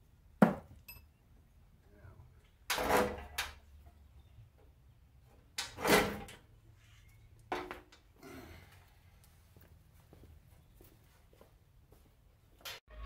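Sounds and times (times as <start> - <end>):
metal bumper clanking and scraping: 2.7 - 3.5, 5.6 - 6.4.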